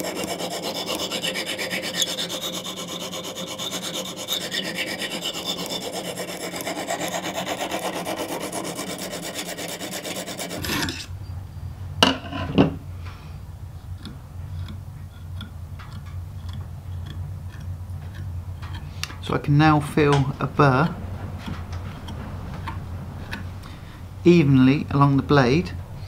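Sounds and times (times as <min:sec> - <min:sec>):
hone grinding on knife edge: 0:00.0 - 0:11.2, 0:13.9 - 0:19.0, 0:20.0 - 0:23.9.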